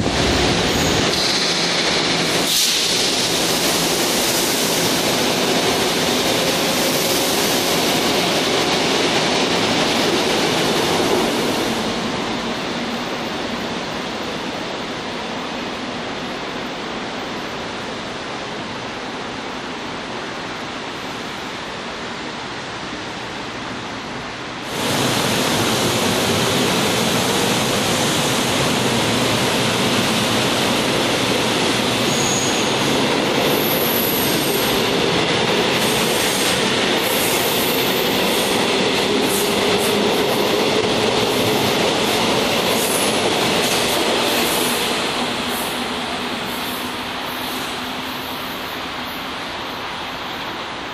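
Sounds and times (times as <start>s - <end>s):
electric train running past: 0.0s - 50.9s
train wheel squeals: 31.9s - 34.8s.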